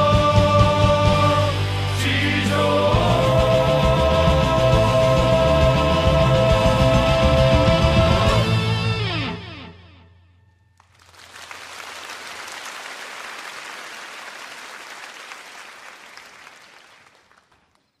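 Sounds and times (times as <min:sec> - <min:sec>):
audience applauding: 0:10.8 - 0:18.0.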